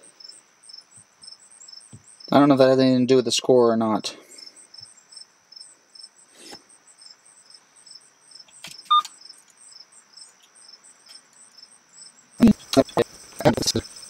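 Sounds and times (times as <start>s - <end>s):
cricket chirping: 0.0s - 14.0s
short electronic beep: 8.9s - 9.1s.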